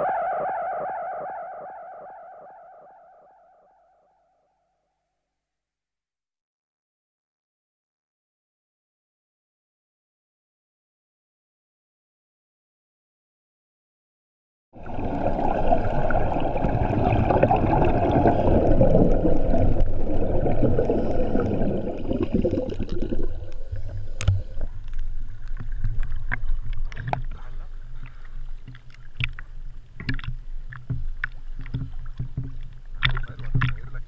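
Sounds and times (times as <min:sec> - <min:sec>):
scuba exhaust bubbles rushing: 0:14.8 - 0:27.1.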